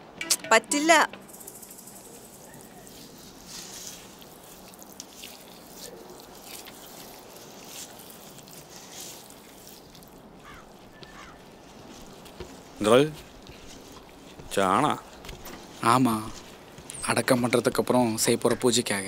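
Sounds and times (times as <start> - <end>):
low steady hiss: 0.0 - 19.0
wet squelches of paste stirred: 2.6 - 17.8.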